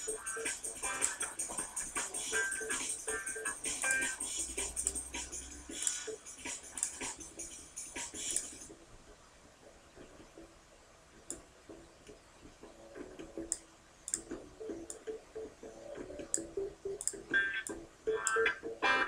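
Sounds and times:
sharp clicks: 16.2s - 18.4s.

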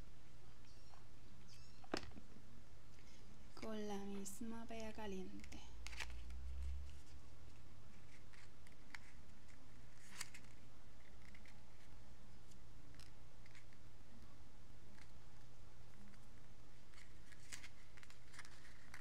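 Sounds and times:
steady low hum: 0.0s - 19.0s
stiff paper rustling and clicking: 4.8s - 13.8s, 15.9s - 19.0s.

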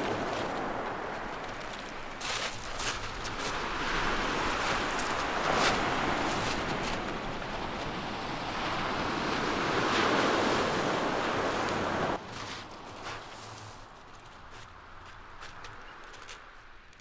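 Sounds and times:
surf breaking on shingle: 0.0s - 10.5s.

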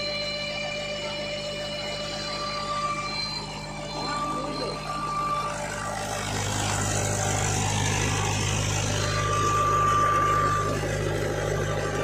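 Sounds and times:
high whine: 0.0s - 12.0s
tractor diesel engine running: 0.0s - 12.0s.

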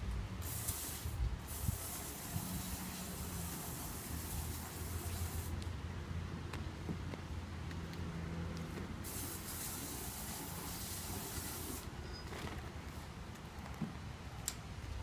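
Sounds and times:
steady hiss: 0.0s - 5.7s, 8.9s - 12.0s.

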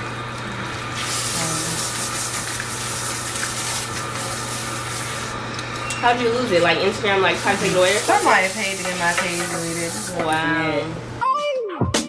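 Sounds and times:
water spraying onto hair: 0.4s - 5.4s, 6.9s - 10.5s
water splashing into basin: 0.9s - 5.3s.

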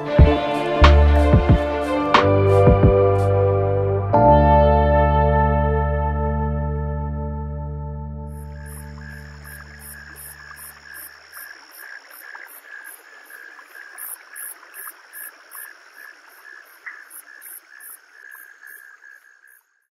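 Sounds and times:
guitar music: 0.0s - 9.3s
insects chirping: 8.3s - 19.9s.

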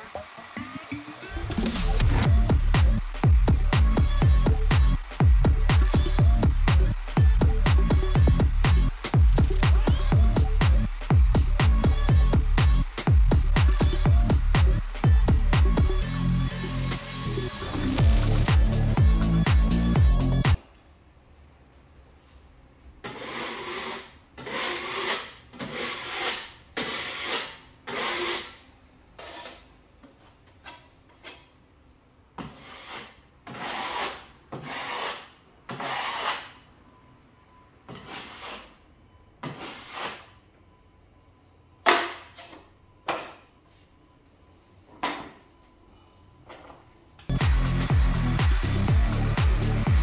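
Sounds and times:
drywall knife scraping plaster: 23.0s - 28.6s, 29.2s - 29.7s, 32.4s - 36.6s, 37.9s - 38.8s, 39.4s - 40.3s.

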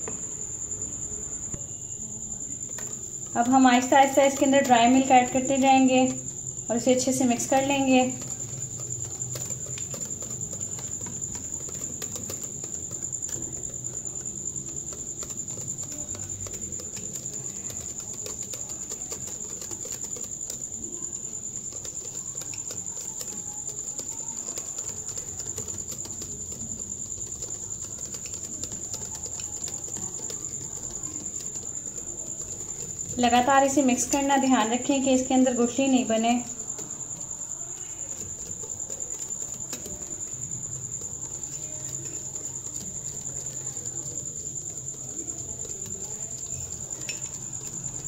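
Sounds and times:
cricket trill: 0.0s - 48.0s.

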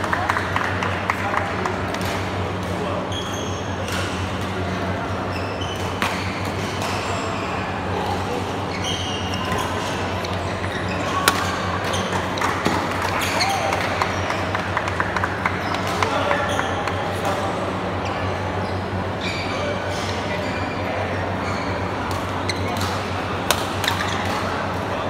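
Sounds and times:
shoes squeaking on court: 2.2s - 14.5s, 15.4s - 17.0s, 17.9s - 24.7s
racket hitting shuttlecock: 11.2s - 14.0s, 22.1s - 24.4s.

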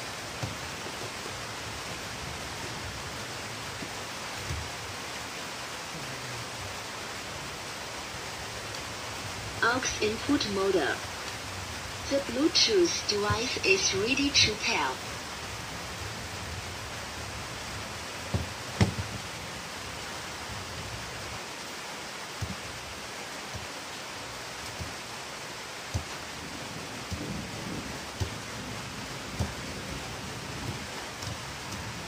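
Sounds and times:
steady hiss: 0.0s - 32.0s
plastic speaker knocking on wood: 18.3s - 19.2s.

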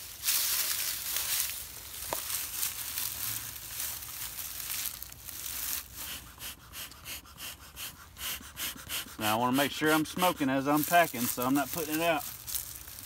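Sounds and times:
dry pine straw crunching: 0.0s - 7.0s, 9.2s - 13.0s
bellows puffing air: 5.6s - 12.2s.

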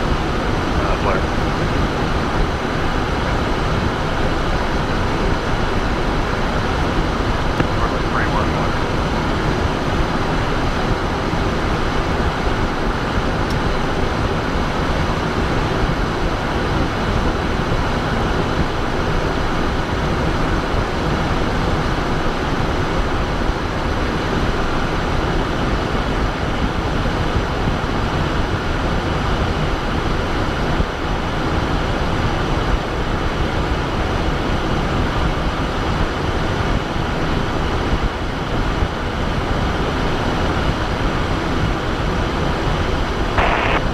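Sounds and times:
jet engines droning: 0.0s - 29.9s, 40.1s - 43.9s
faint steady whine: 0.0s - 33.1s, 40.1s - 43.9s.

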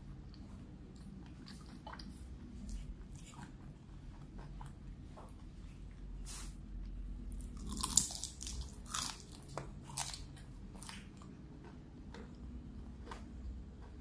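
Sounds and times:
fried food crunching: 7.4s - 14.0s.

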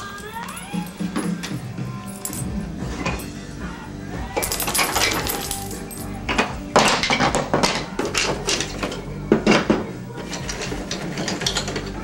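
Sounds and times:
wooden toy track pieces clattering: 4.4s - 12.0s.

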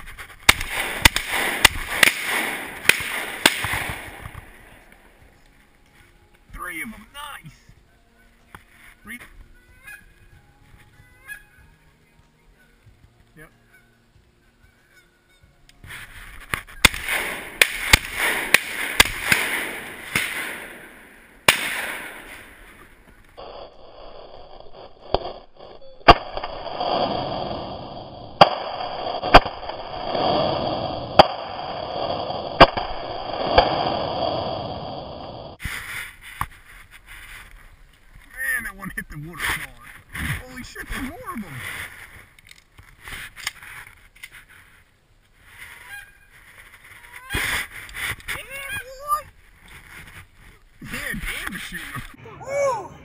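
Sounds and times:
geese honking: 6.9s - 17.0s, 45.5s - 47.7s.

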